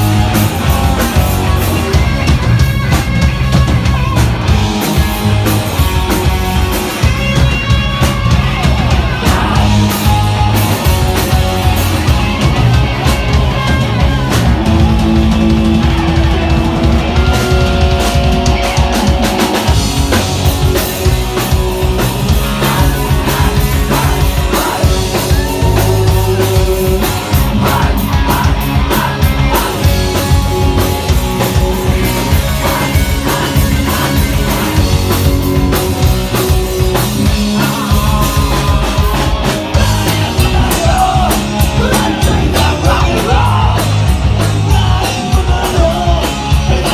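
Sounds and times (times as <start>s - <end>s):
drum kit: 0.0s - 46.9s
electric guitars: 0.0s - 46.9s.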